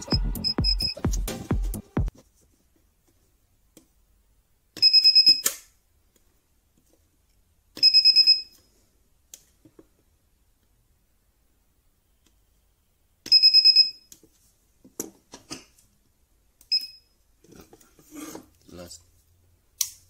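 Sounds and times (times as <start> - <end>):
rapid high buzzer beeps: 0.0 - 1.0.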